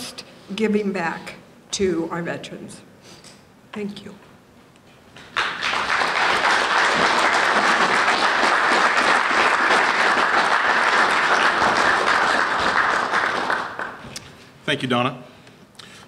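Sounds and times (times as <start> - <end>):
audience applauding: 5.2 - 14.2.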